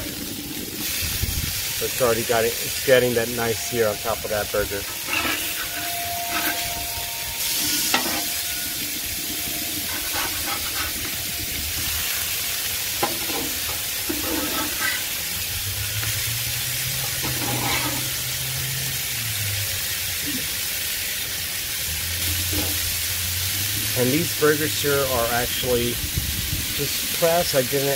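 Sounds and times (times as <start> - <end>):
burger patties sizzling on griddle: 0.0 - 27.9
spatula scraping and tapping griddle: 4.8 - 6.8, 7.6 - 8.7, 9.8 - 11.2, 13.0 - 15.1, 17.0 - 18.2.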